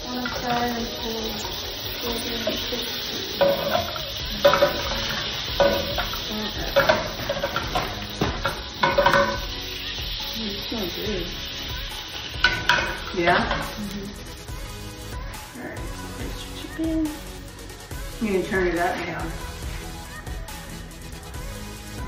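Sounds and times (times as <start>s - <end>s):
utensil scraping pan: 0.0s - 10.0s, 11.5s - 14.2s
food sizzling in frying pan: 0.0s - 22.0s.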